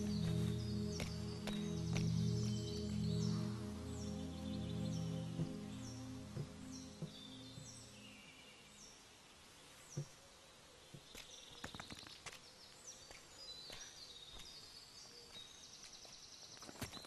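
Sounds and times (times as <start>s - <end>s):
background music: 0.0s - 8.9s.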